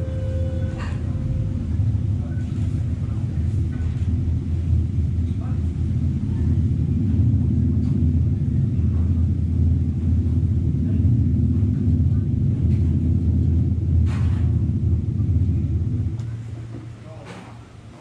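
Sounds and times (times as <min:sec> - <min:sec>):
low droning dance music chord: 0:00.0 - 0:02.2.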